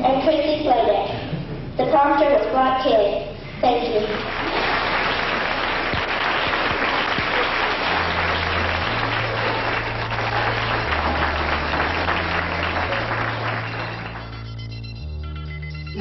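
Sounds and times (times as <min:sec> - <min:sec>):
audience applauding: 0:04.0 - 0:14.8
low bass music notes: 0:07.8 - 0:16.0.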